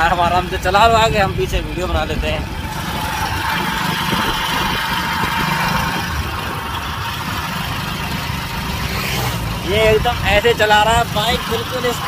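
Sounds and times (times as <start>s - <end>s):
motorcycle engine running: 0.0s - 12.0s
wind rushing on microphone: 0.6s - 7.5s.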